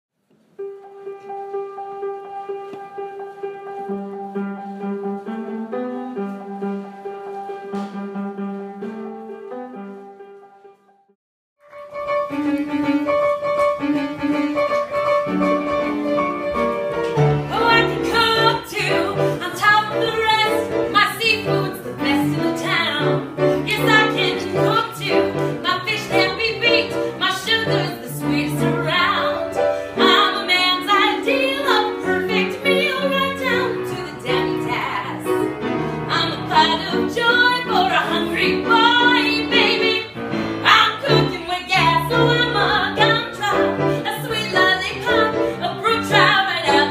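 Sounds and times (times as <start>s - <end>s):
piano accompaniment: 0.2s - 46.9s
woman singing: 17.5s - 35.4s, 36.1s - 46.9s.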